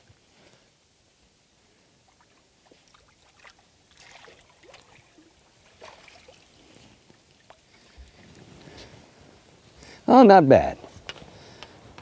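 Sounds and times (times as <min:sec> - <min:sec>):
fish splashing in water: 0:02.1 - 0:06.6.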